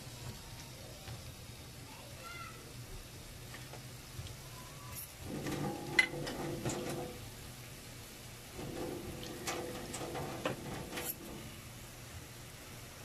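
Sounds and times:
liquid pouring into a wok: 0:05.1 - 0:12.6.

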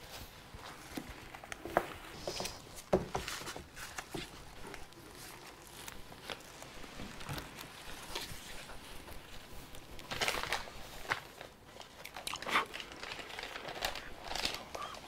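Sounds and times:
paper rustling: 0:00.0 - 0:15.0.

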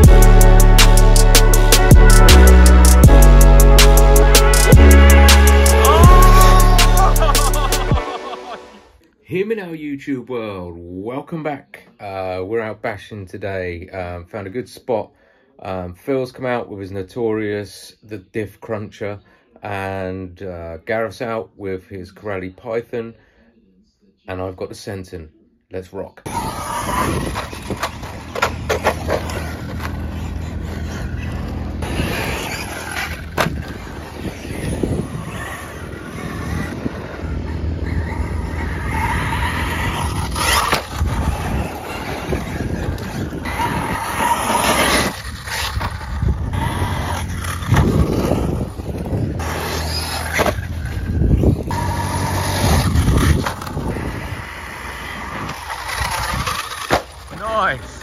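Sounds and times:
electric motors whining: 0:00.0 - 0:08.5, 0:26.3 - 0:58.0
tyres crunching on gravel: 0:26.3 - 0:58.0.

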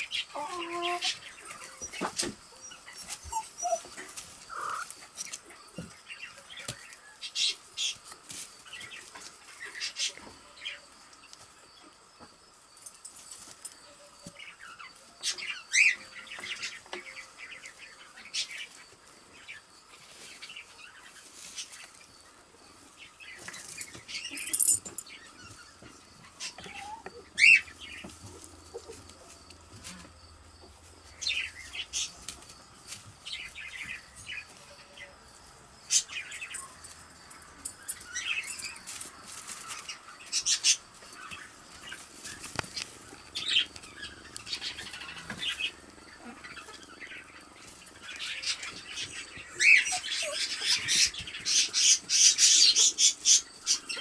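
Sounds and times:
wood shavings rustling and crackling: 0:38.0 - 0:46.8.

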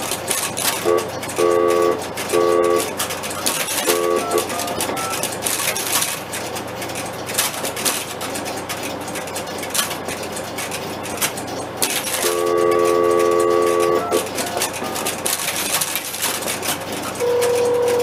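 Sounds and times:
relays clicking: 0:00.0 - 0:18.0
steady multi-pitch tone: 0:00.9 - 0:02.9, 0:03.8 - 0:05.3.

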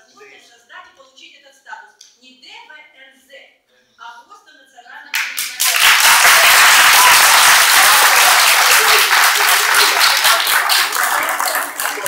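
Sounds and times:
audience applauding: 0:05.2 - 0:12.0.

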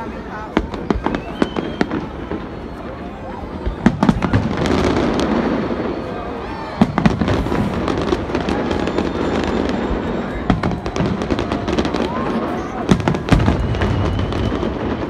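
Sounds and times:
fireworks rumbling and crackling: 0:00.0 - 0:15.0
fireworks sharp bangs: 0:00.0 - 0:15.0.

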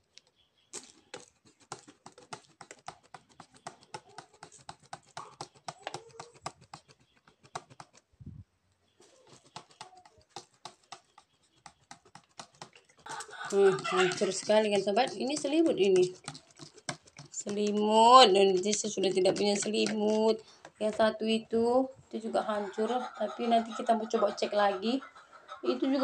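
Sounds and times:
hand sprayer clicking and squirting: 0:00.8 - 0:08.1, 0:09.3 - 0:20.9.

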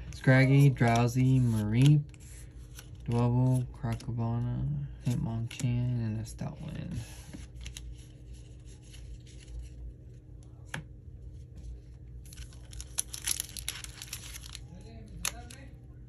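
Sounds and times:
foil wrapper tearing and crinkling: 0:12.2 - 0:15.7.

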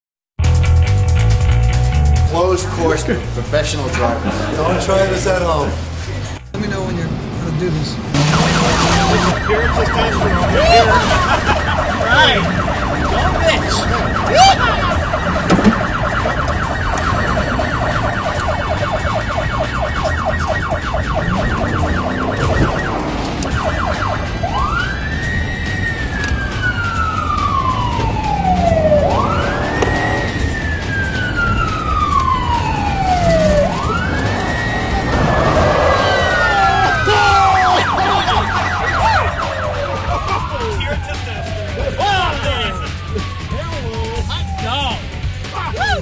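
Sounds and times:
car engine running hard: 0:06.0 - 0:41.7
police siren yelp and wail: 0:08.1 - 0:46.0.

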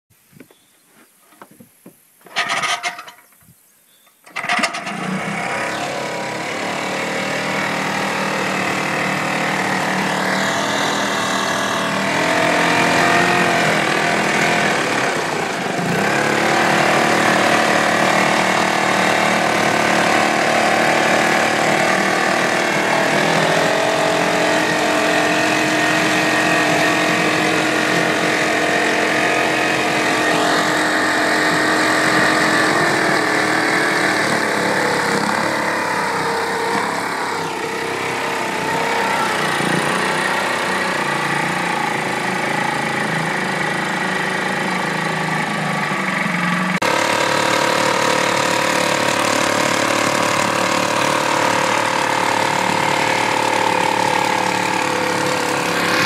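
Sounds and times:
pull-start cord burst: 0:04.2 - 0:06.2
outboard motor running: 0:04.3 - 0:56.0.

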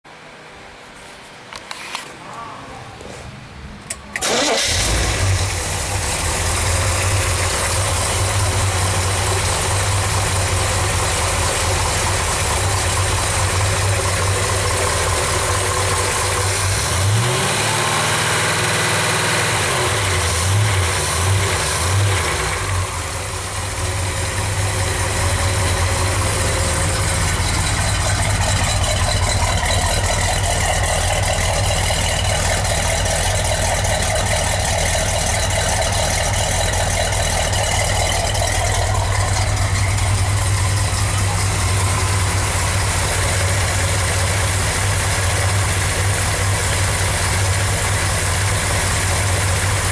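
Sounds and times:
car engine idling and revving: 0:03.9 - 0:49.9.

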